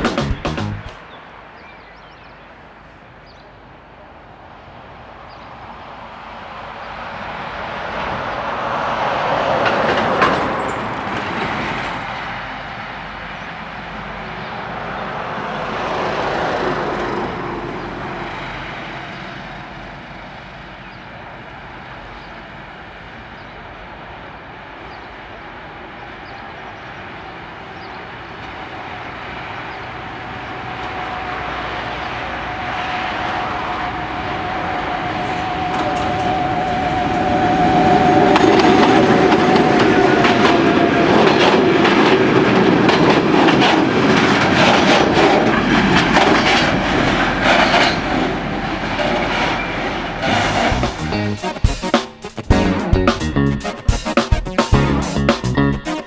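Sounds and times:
train wheels clattering over rail joints: 38.4 - 50.6.

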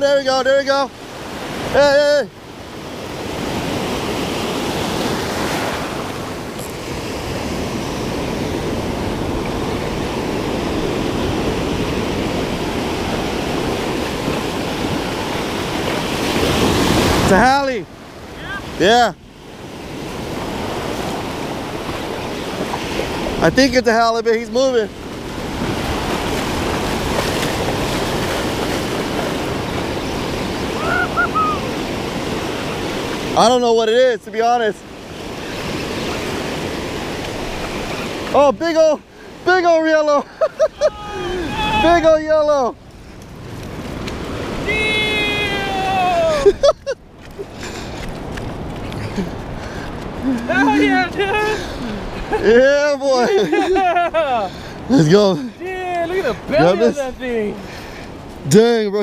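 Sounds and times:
ocean surf breaking: 0.0 - 59.0.

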